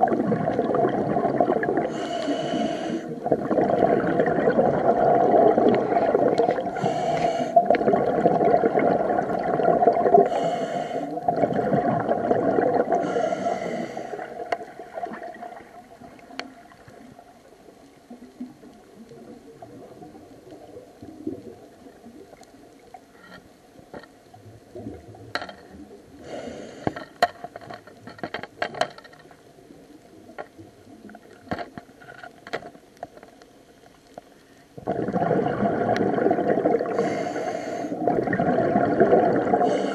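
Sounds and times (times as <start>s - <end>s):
exhaled bubbles gurgling: 0.0s - 23.0s, 24.3s - 26.8s, 34.8s - 39.9s
regulator hisses: 1.9s - 3.2s
sharp clicks and crackles: 25.2s - 25.8s, 26.8s - 34.5s.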